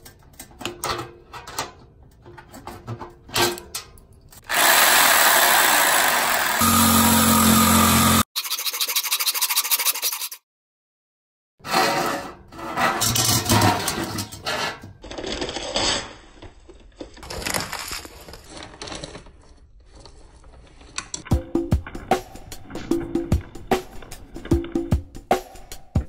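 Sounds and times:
reciprocating saw cutting pipe: 0:04.4 - 0:10.4
metal scraping and knocking: 0:11.7 - 0:15.0.

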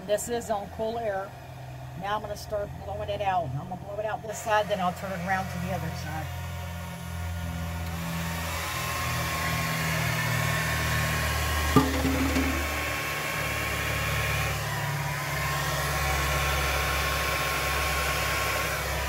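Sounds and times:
hair dryer running: 0:07.7 - 0:19.0
sharp knock: 0:11.8 - 0:13.2.

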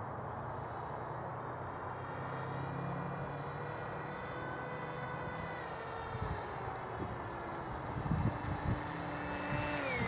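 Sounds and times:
model plane motor whining: 0:01.8 - 0:10.0.

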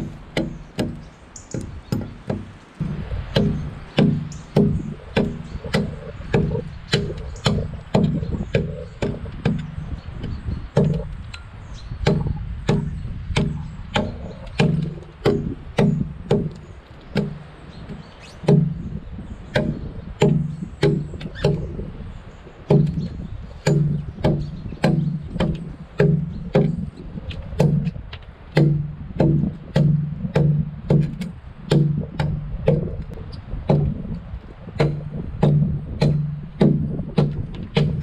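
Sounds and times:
axe chopping into log: 0:34.8 - 0:38.0.

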